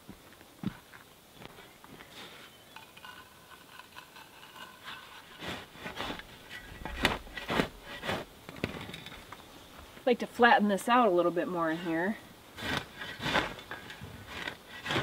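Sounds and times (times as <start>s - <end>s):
shovel scraping soil: 2.2s - 9.3s, 11.7s - 15.0s.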